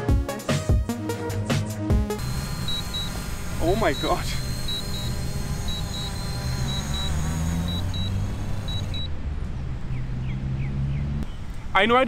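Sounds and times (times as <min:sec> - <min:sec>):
quadcopter drone buzzing: 0:02.2 - 0:09.1
short high beeps: 0:02.2 - 0:09.1.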